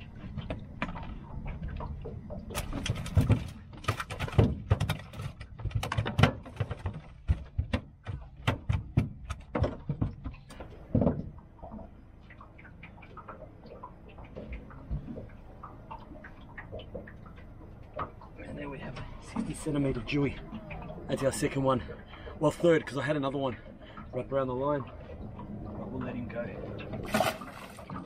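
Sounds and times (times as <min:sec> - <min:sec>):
fish flapping and slapping: 0:00.0 - 0:10.5, 0:27.0 - 0:28.0.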